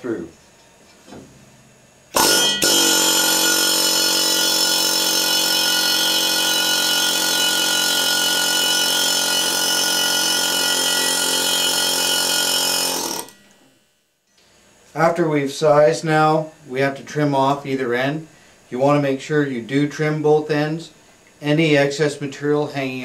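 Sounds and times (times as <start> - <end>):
pneumatic air hammer running: 2.1 - 13.7.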